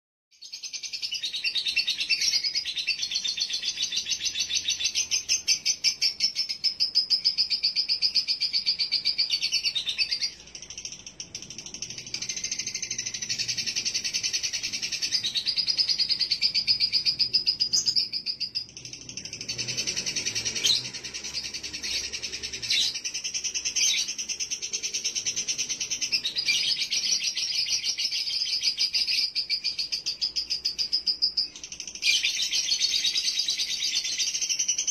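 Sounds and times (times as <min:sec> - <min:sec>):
lovebird shrill rapid trill: 0:00.5 - 0:34.9.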